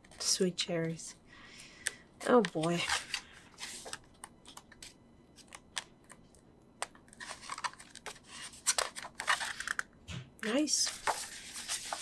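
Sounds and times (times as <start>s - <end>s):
book pages turning: 2.2s - 6.2s, 6.8s - 9.8s, 10.8s - 12.0s
page swishes: 10.9s - 12.0s.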